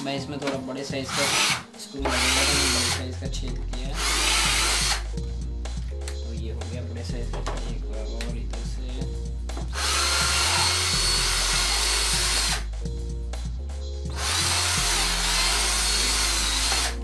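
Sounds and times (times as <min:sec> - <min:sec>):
drill boring through plastic: 0:01.1 - 0:03.0, 0:04.0 - 0:05.0, 0:09.8 - 0:12.6, 0:14.1 - 0:17.0
power drill whining: 0:01.1 - 0:03.0, 0:04.0 - 0:05.0, 0:09.8 - 0:12.7, 0:14.1 - 0:17.0.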